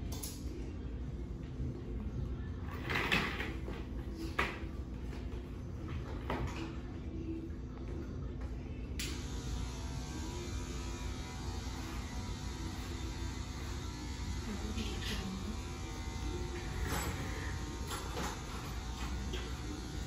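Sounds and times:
low electric hum: 0.0s - 20.0s.

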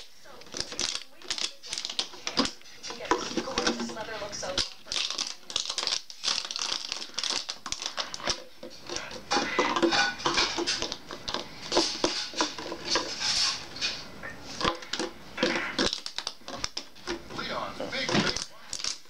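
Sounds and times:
dog crunching plastic bottle: 0.0s - 19.0s.

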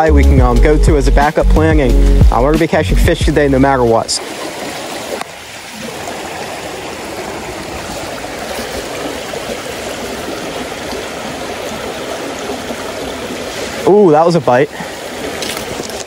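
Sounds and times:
creek babbling over rocks: 3.8s - 16.0s.

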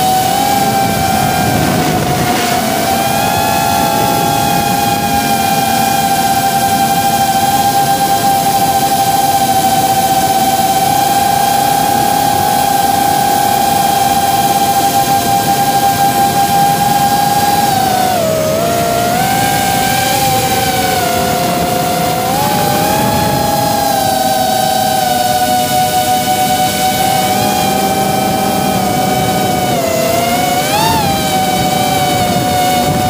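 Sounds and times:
drone propellers whining: 0.0s - 33.0s.

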